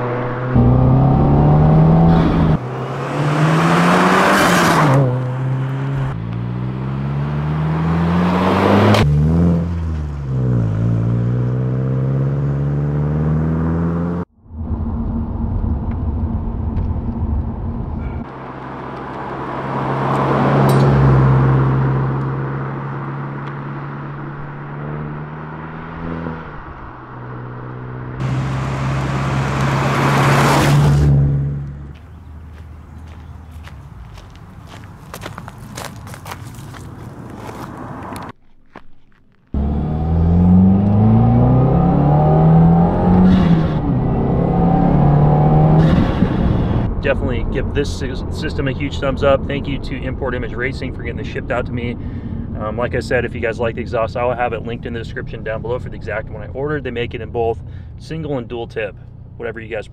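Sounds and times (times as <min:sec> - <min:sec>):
car engine accelerating: 0:00.0 - 0:34.8, 0:39.4 - 0:59.9.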